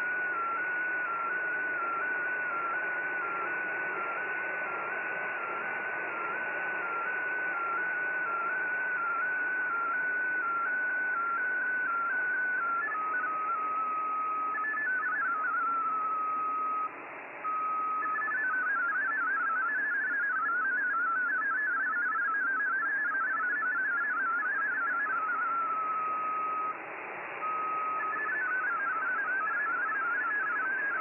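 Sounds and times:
digital data signal tones: 5.3 - 16.9, 17.5 - 26.8, 27.4 - 31.0.

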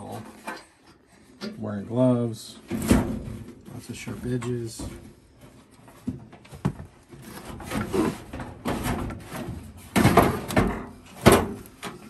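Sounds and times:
sheet metal scraping and clunking: 7.1 - 12.0.

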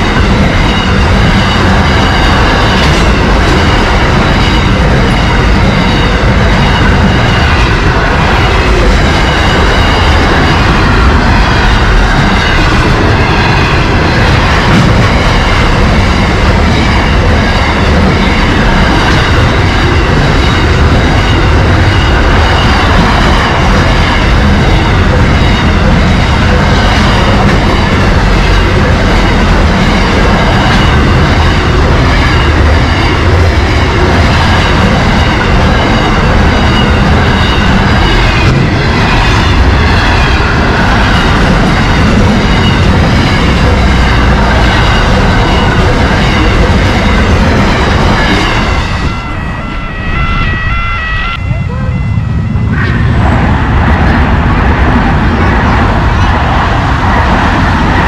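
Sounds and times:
freight train wheels on rails: 0.0 - 58.0.

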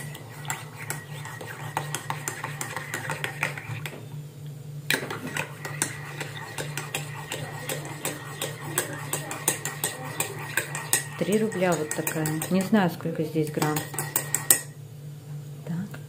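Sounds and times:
teaspoon clinking in ceramic mug: 5.8 - 12.7.

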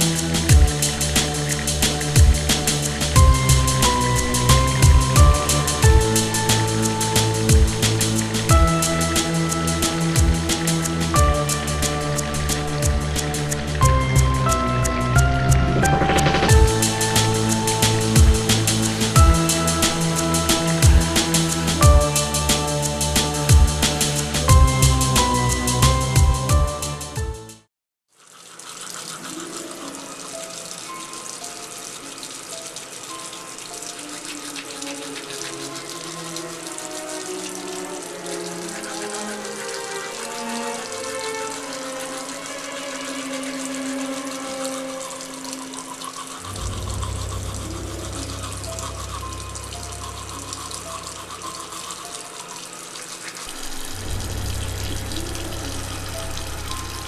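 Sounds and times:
tap water splashing into basin: 0.0 - 14.6, 28.4 - 57.0
slow music of long notes: 0.0 - 27.7, 29.2 - 57.0
toothbrush scrubbing teeth: 28.2 - 57.0.

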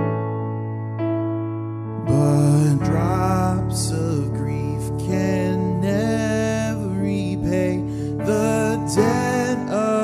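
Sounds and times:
man singing a hymn: 2.0 - 10.0
instrumental accompaniment: 7.4 - 10.0.

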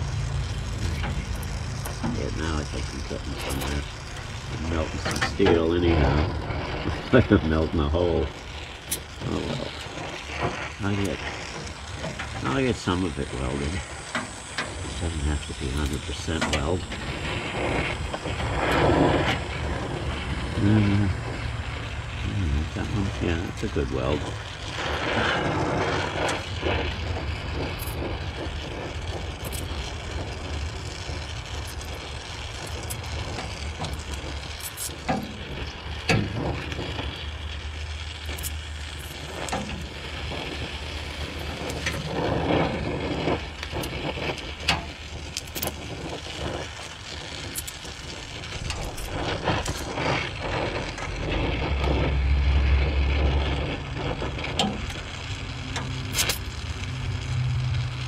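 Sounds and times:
welding torch flame hissing: 0.0 - 58.0
sharp clicks: 22.1 - 58.0.

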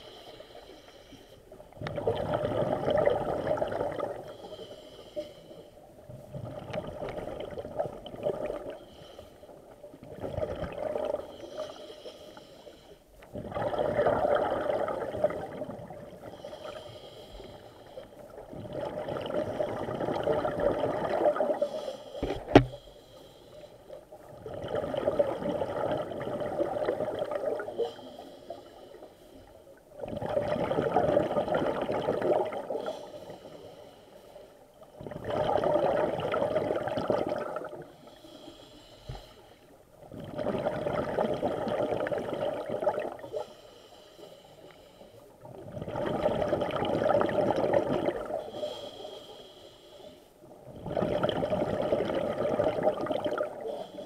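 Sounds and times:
exhaled bubbles rushing: 1.8 - 4.2, 13.4 - 16.2, 18.5 - 21.6, 24.3 - 27.7, 30.0 - 32.8, 35.0 - 37.8, 40.1 - 43.3, 45.5 - 48.4, 50.7 - 53.6
diver breathing through regulator: 4.2 - 5.8, 21.6 - 24.0, 37.8 - 39.8, 48.4 - 50.4, 53.5 - 54.0.

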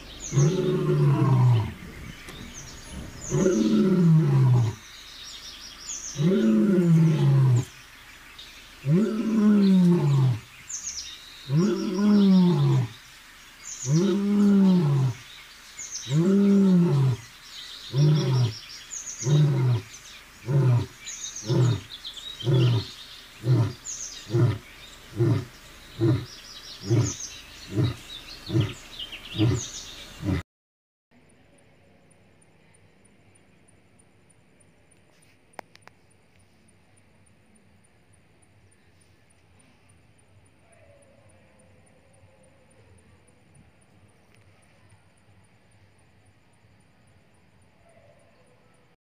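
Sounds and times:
birds chirping: 0.0 - 30.4
lion grunting: 0.2 - 4.8, 6.1 - 7.7, 8.8 - 10.5, 11.5 - 13.0, 13.8 - 15.2, 16.1 - 17.3, 17.9 - 18.6, 19.2 - 30.4
lion roaring: 0.2 - 4.8, 6.1 - 7.7, 8.8 - 10.5, 11.5 - 13.0, 13.8 - 15.2, 16.0 - 17.3, 17.9 - 18.6, 19.2 - 30.4.

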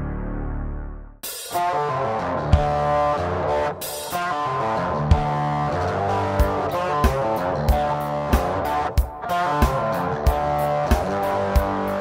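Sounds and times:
guitar: 0.0 - 12.0
steady drum beat: 1.2 - 1.8, 2.5 - 3.0, 5.1 - 5.6, 6.3 - 12.0.

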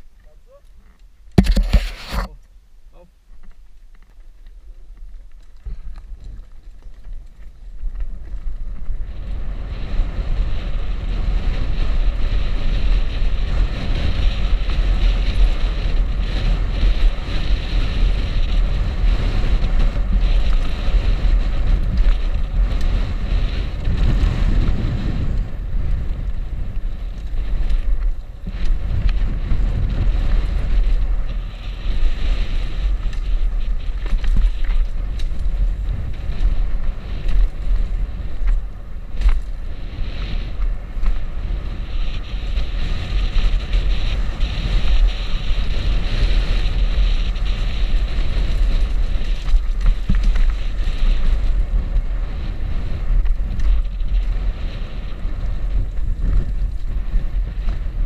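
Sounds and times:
bike tyres rolling on dirt: 0.0 - 58.0
wind rushing over microphone: 1.3 - 2.4, 5.6 - 58.0
sharp knock: 1.4 - 2.3.

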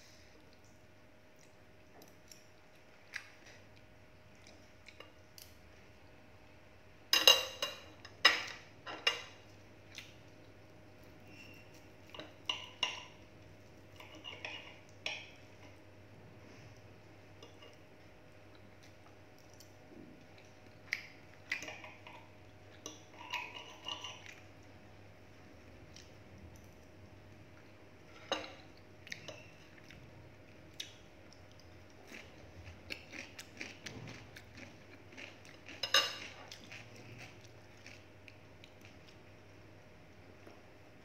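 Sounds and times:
cutlery clinking on a plate: 7.2 - 9.4, 35.8 - 36.5.

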